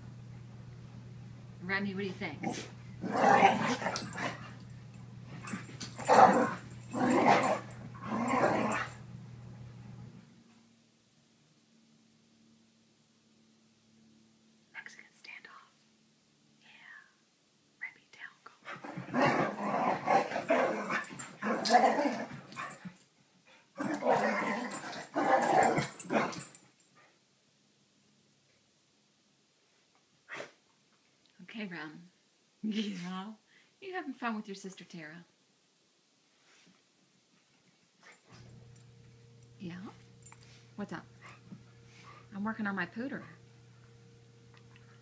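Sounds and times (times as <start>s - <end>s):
dogs growling in play: 2.4s - 9.0s, 18.6s - 22.8s, 23.8s - 26.6s.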